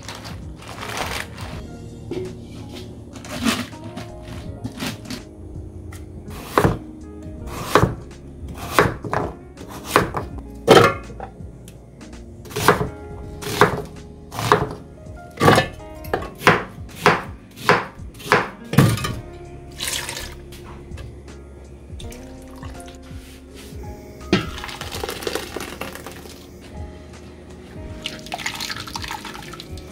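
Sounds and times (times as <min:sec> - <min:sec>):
soft background music: 0:00.0 - 0:29.9
knife chopping on cutting board: 0:06.3 - 0:06.8, 0:07.5 - 0:08.0, 0:08.6 - 0:11.1, 0:12.5 - 0:14.8, 0:15.4 - 0:19.2.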